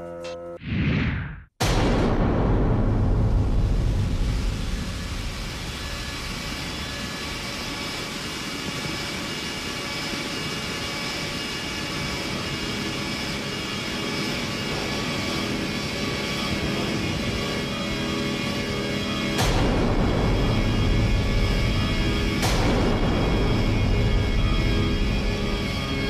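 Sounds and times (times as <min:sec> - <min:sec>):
deep rumbling boom: 0:00.9 - 0:08.2, 0:19.3 - 0:26.0
ominous soundtrack drone: 0:01.7 - 0:26.0.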